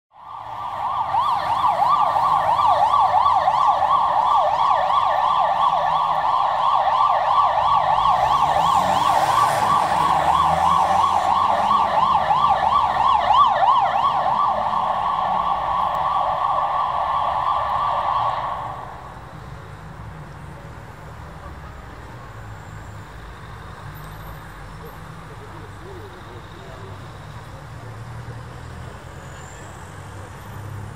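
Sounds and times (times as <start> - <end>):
ambulance siren yelping: 0.1 - 19.2
low traffic noise: 0.1 - 30.9.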